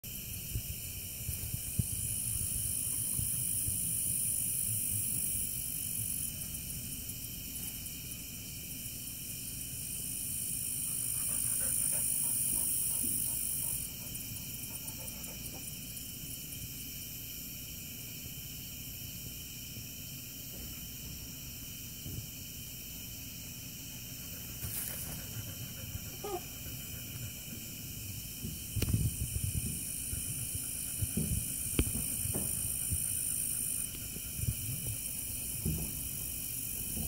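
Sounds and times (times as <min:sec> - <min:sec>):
high-pitched insect chirring: 0:00.3 - 0:07.2, 0:08.6 - 0:17.1, 0:23.8 - 0:37.0
faint distant animal calls: 0:24.4 - 0:27.8.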